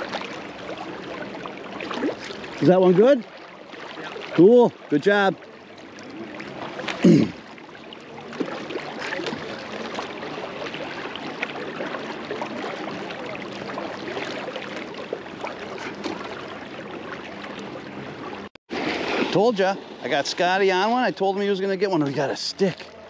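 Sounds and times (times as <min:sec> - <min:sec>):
small splashes and ticks: 0:00.0 - 0:17.8
river water rushing: 0:00.0 - 0:23.0.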